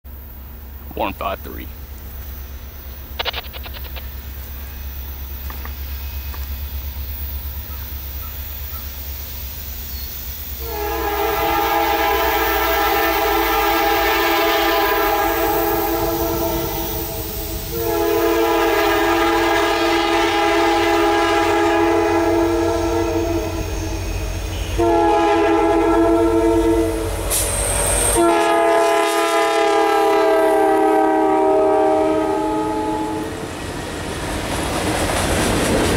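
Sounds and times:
train air horn blasts: 0:10.6 - 0:33.3.

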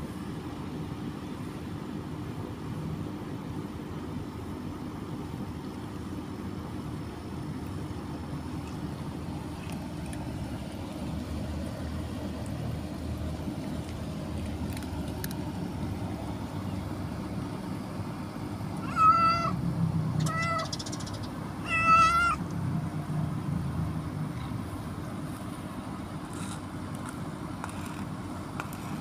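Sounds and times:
cat meowing: 0:18.8 - 0:19.6, 0:20.2 - 0:20.8, 0:21.6 - 0:22.4.

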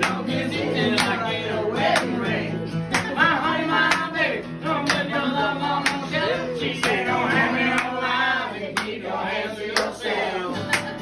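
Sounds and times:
hand claps: 0:00.0 - 0:01.3, 0:01.9 - 0:02.2, 0:02.9 - 0:04.2, 0:04.8 - 0:06.2, 0:06.8 - 0:07.1, 0:07.7 - 0:08.0, 0:08.7 - 0:09.0, 0:09.7 - 0:10.0, 0:10.6 - 0:11.0
acoustic guitars playing: 0:00.0 - 0:11.0.

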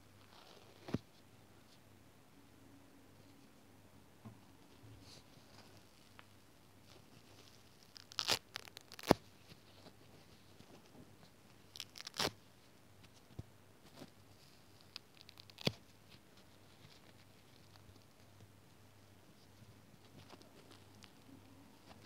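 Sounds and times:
sponge foam ripping: 0:07.6 - 0:09.3, 0:11.7 - 0:12.4.

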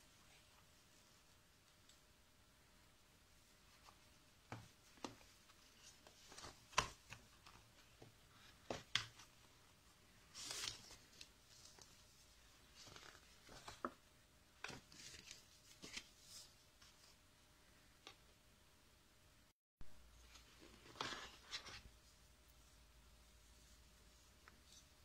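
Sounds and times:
paper rustle: 0:05.0 - 0:09.4, 0:10.2 - 0:14.0, 0:14.6 - 0:17.2, 0:20.2 - 0:21.9.

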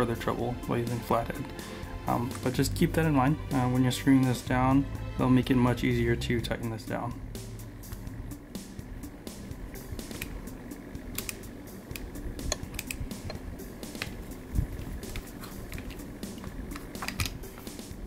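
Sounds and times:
screwdriver clicking on metal: 0:15.1 - 0:17.4.

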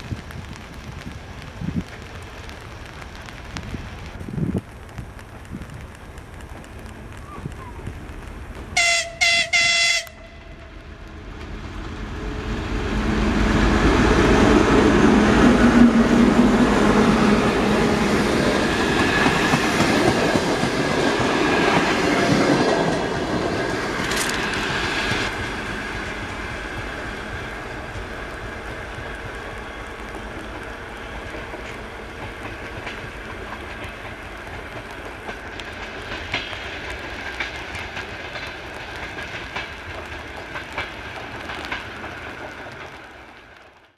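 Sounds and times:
diesel locomotive engine: 0:00.0 - 0:43.9
locomotive horn blasts: 0:08.8 - 0:10.7
train wheels clattering over rail joints: 0:30.0 - 0:43.9.

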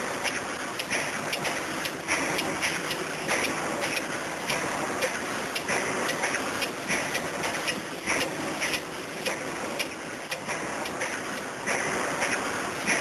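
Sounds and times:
machinery rumble and hiss: 0:00.0 - 0:13.0.

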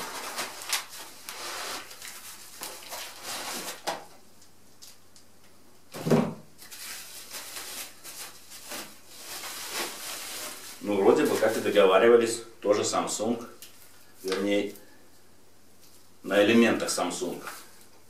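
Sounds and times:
packaging rustling: 0:00.0 - 0:04.1, 0:06.6 - 0:11.9.

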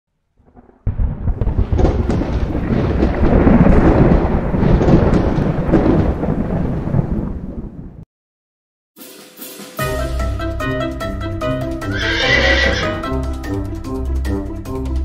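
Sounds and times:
rumbling thunder with crackles: 0:00.4 - 0:08.0.

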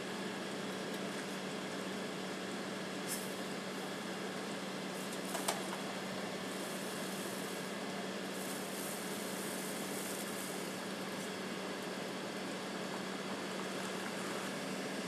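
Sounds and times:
fire hose water jet hissing: 0:06.5 - 0:07.7, 0:08.3 - 0:10.8.

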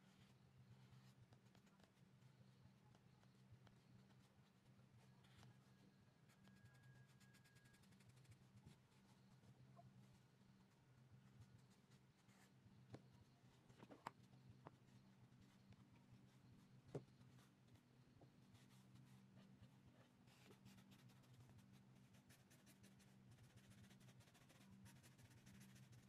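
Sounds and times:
low steady hum: 0:00.0 - 0:26.0
marker scratching on paper: 0:18.6 - 0:26.0.

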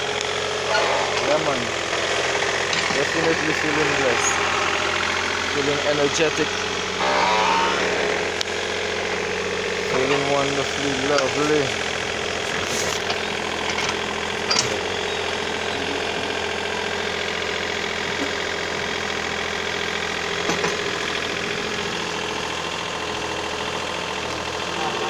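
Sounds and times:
excavator engine running: 0:00.0 - 0:25.0.

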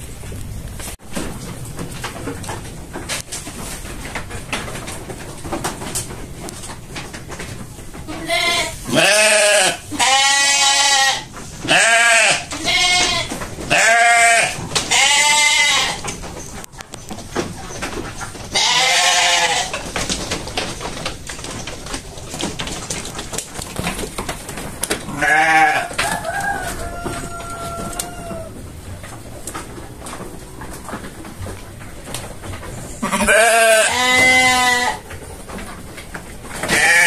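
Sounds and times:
sheep bleating: 0:08.1 - 0:16.0, 0:25.1 - 0:25.9, 0:33.0 - 0:35.0, 0:36.7 - 0:37.0.

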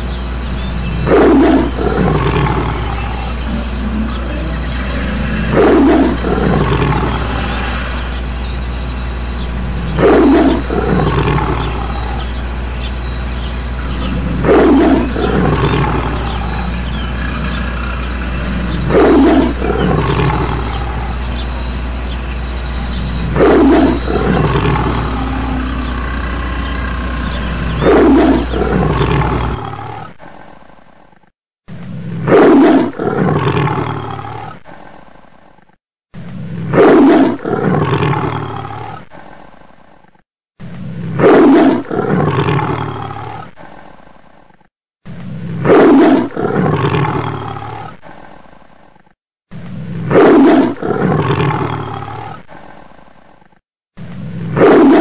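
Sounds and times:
steady low hum: 0:00.0 - 0:29.6
dinosaur roar: 0:00.4 - 0:30.1, 0:32.3 - 0:34.7, 0:36.6 - 0:39.2, 0:41.2 - 0:43.7, 0:50.1 - 0:52.5.

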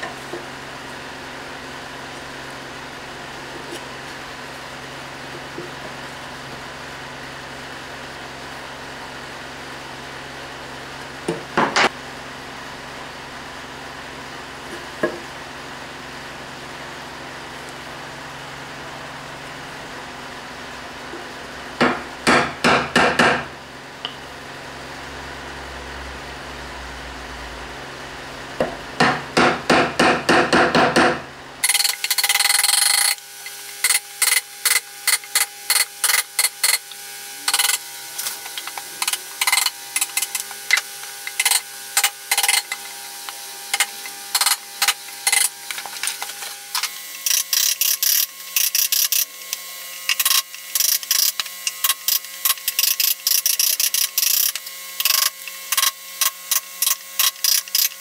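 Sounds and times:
chisel struck into wood: 0:21.8 - 0:23.5, 0:28.6 - 0:31.2.

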